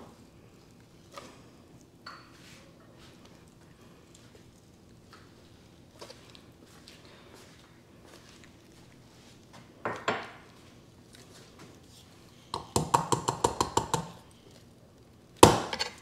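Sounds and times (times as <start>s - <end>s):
knife scraping on cutting board: 15.7s - 16.0s.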